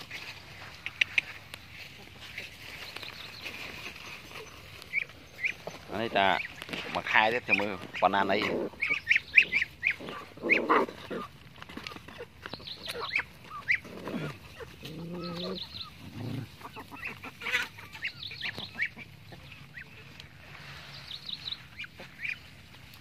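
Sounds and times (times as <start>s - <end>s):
ducks chirping and squeaking: 0.0s - 23.0s.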